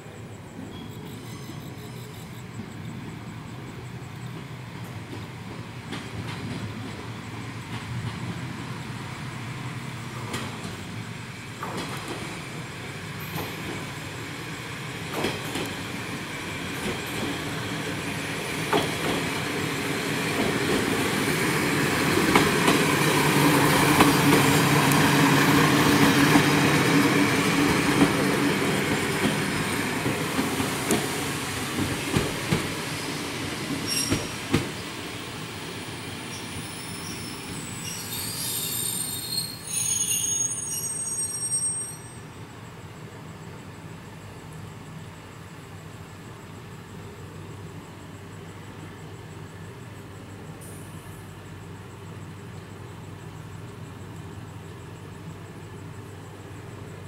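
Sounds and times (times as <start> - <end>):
diesel railcar engine drone: 0.0 - 57.0
train wheel clicks over rail joints: 15.1 - 15.8, 18.7 - 19.4.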